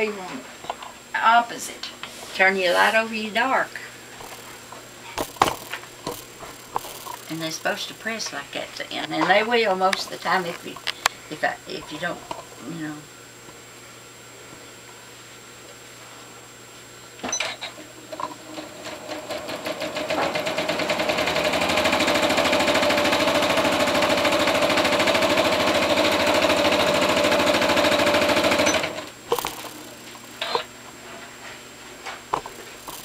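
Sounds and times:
sewing machine stitching: 18.5s - 29.9s.

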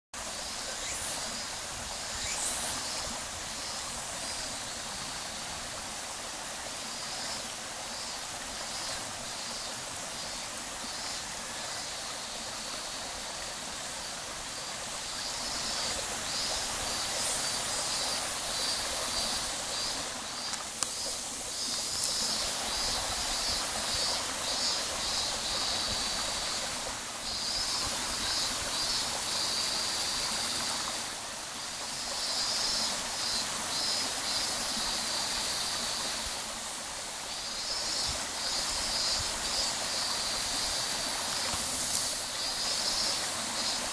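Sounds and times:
stream flowing over rocks: 0.2s - 43.9s.

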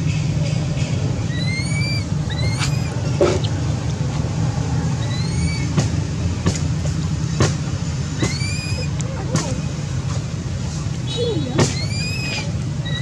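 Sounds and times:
baby monkey distress cries: 1.3s - 3.1s, 5.0s - 5.7s, 8.2s - 9.0s, 11.2s - 13.0s.

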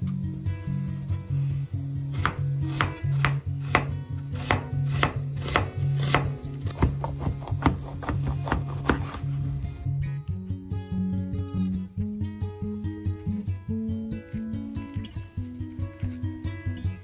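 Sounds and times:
background music with bass line: 0.0s - 17.0s
knife chopping on cutting board: 2.1s - 9.3s.

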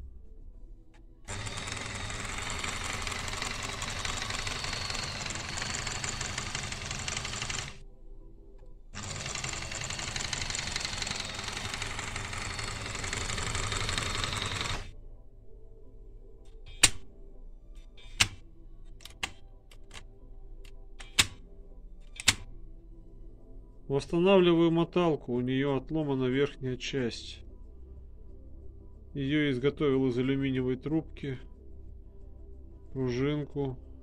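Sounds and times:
sewing machine running: 1.3s - 7.8s, 9.0s - 14.9s.

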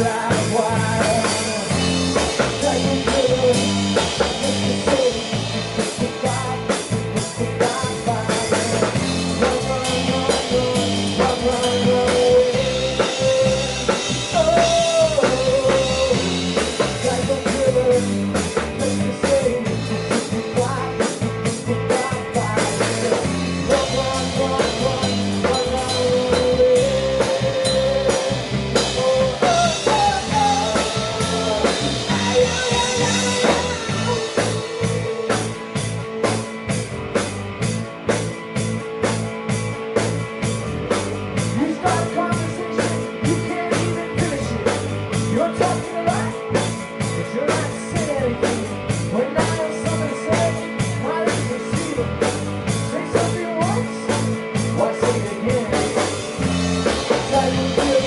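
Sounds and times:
drums and cymbals: 0.0s - 58.0s
live rock band playing: 0.0s - 58.0s
pitch-bending melody line: 23.2s - 37.1s.

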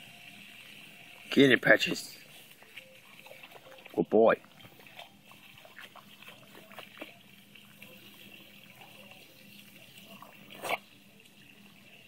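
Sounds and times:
garden hose spraying water: 0.0s - 12.0s
puppy snorting: 10.4s - 10.9s.

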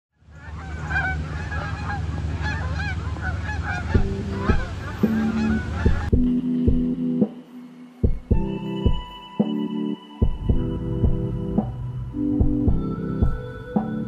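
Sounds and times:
geese honking: 0.2s - 7.2s
plucked music: 3.9s - 14.0s.

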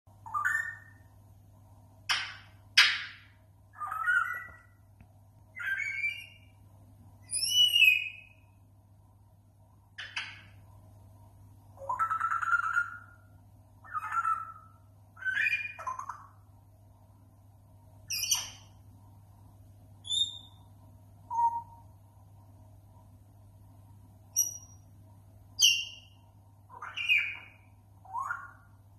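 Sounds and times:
parrot whistles and squawky calls: 0.2s - 1.0s, 2.1s - 4.8s, 5.5s - 6.5s, 7.2s - 8.4s, 11.8s - 16.4s, 18.1s - 18.7s, 20.0s - 20.6s, 21.3s - 21.8s, 24.4s - 24.8s, 25.6s - 26.1s, 26.7s - 28.7s.

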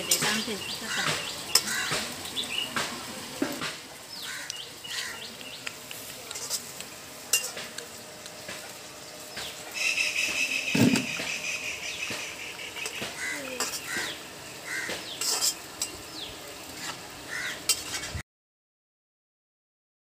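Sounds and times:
frying sizzle: 0.0s - 18.2s
metal utensil clinking in pan: 7.3s - 7.8s.

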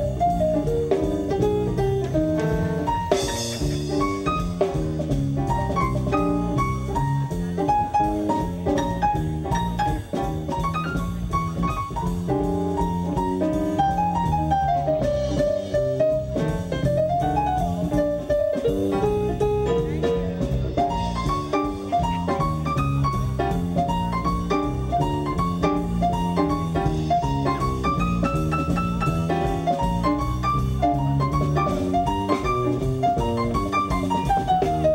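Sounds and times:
drum kit: 0.0s - 34.9s
electric keyboard: 0.0s - 34.9s
guitar: 0.0s - 34.9s.

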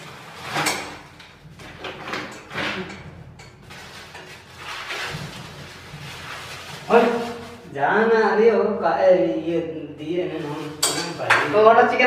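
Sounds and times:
utensil scraping a wok: 0.0s - 7.7s.

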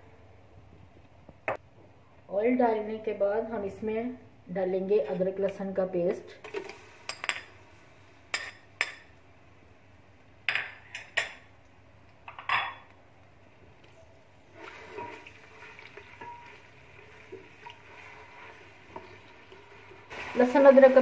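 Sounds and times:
paste sizzling in hot oil: 14.6s - 21.0s
spatula stirring: 14.8s - 21.0s
spoon knocking and scraping: 15.0s - 15.3s, 16.2s - 16.5s.

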